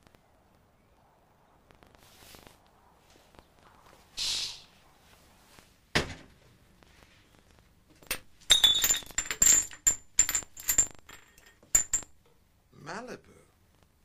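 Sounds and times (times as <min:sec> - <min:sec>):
short swish: 0:04.1 - 0:04.9
thump: 0:05.9 - 0:06.4
glass bottles clinking: 0:08.0 - 0:12.2.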